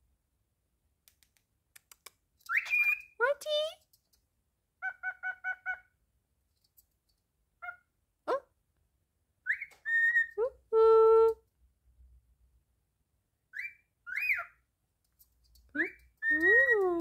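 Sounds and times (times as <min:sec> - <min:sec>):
cockatiel chirping and whistling: 0:02.5 - 0:03.2, 0:09.4 - 0:10.4, 0:13.5 - 0:14.6.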